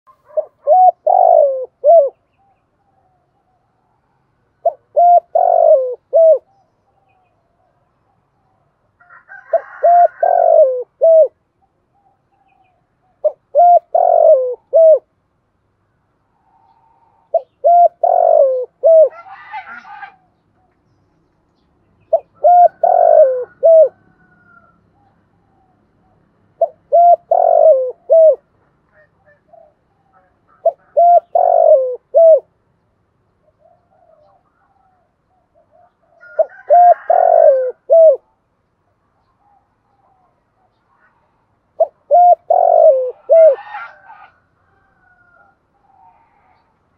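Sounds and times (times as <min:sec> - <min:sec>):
dove cooing: 0:00.2 - 0:03.7, 0:04.6 - 0:07.3, 0:09.0 - 0:15.1, 0:16.4 - 0:20.7, 0:22.1 - 0:32.5, 0:33.4 - 0:38.4, 0:41.8 - 0:46.7.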